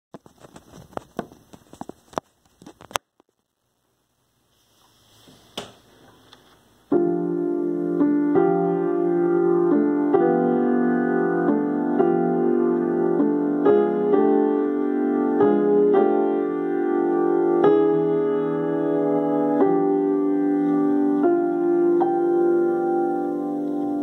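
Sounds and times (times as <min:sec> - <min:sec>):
piano chords: 0:06.9 - 0:24.0.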